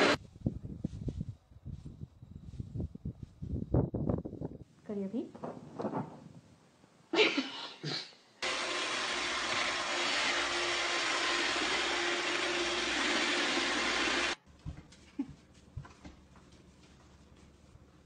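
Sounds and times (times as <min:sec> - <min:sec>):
robot vacuum whirring: 0:08.4 - 0:14.4.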